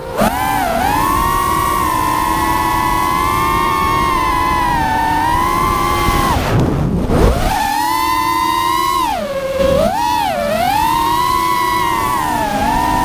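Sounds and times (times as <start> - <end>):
drone motors whining: 0.0 - 13.0
rush of air: 4.5 - 7.9.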